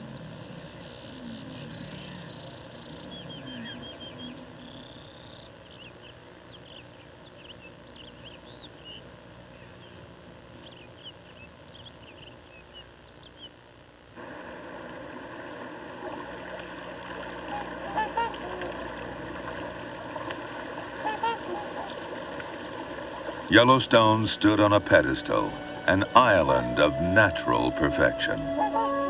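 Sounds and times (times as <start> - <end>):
birds chirping: 0.0 - 13.7, 21.0 - 29.0
rushing water: 14.2 - 27.9.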